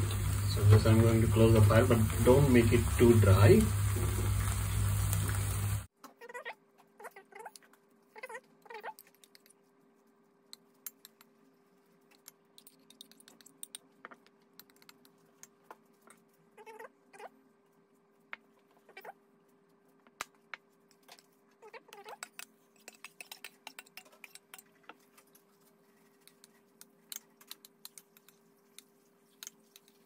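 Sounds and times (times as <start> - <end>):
pan hissing on stove: 0.0 - 5.9
metal spoon scraping glass dish: 22.1 - 24.7.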